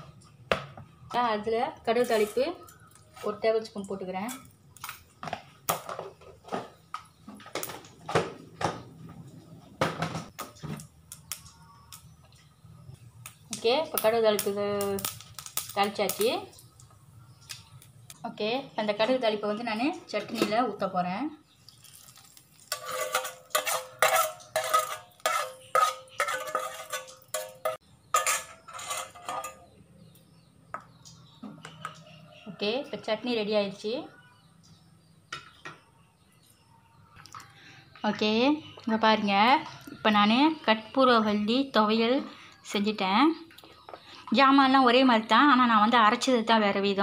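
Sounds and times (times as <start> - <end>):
mustard seeds popping in oil: 10.3 - 18.3, 21.6 - 23.7
spoon scraping metal frying pan: 22.6 - 29.8.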